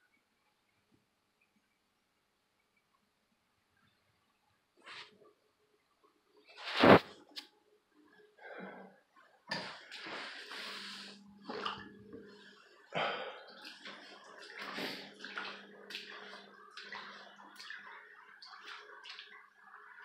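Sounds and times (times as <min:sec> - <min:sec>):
footsteps splashing through water: 0:13.5 - 0:20.0.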